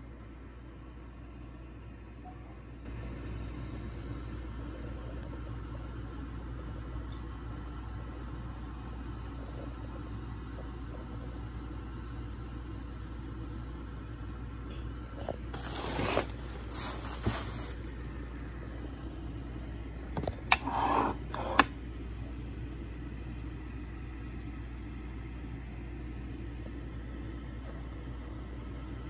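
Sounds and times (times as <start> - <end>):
steady low hum: 0.0 - 29.0
scraping rustling noise: 15.5 - 18.4.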